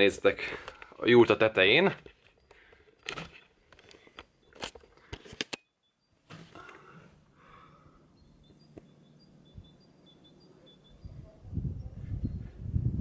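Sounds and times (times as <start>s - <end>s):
faint outdoor ambience: 0.0s - 13.0s
camera handling clicks and knocks: 2.0s - 5.6s
high bird chirps: 7.6s - 11.4s.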